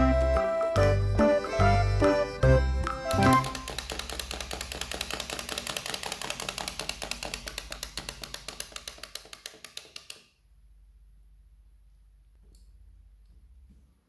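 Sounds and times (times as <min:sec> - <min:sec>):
toy walking mechanism clicking: 0:02.8 - 0:10.4.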